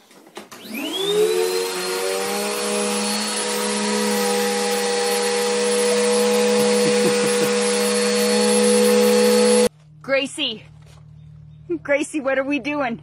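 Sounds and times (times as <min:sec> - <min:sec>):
vacuum cleaner motor running: 0:00.5 - 0:09.7.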